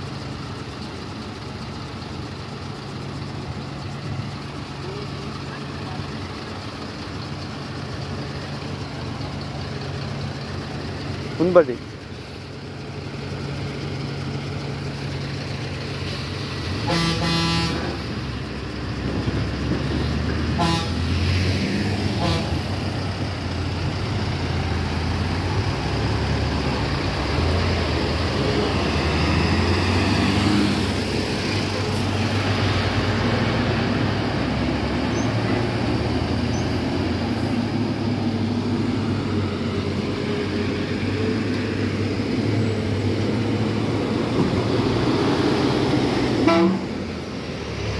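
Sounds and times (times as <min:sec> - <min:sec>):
truck engines rumbling: 0:00.0 - 0:47.9
truck horn: 0:16.7 - 0:18.1, 0:20.5 - 0:21.2, 0:22.0 - 0:22.8, 0:46.4 - 0:47.0.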